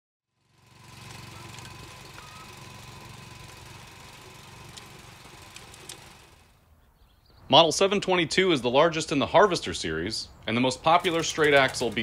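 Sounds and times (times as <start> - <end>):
tractor engine running: 0.4 - 6.6, 10.6 - 12.0.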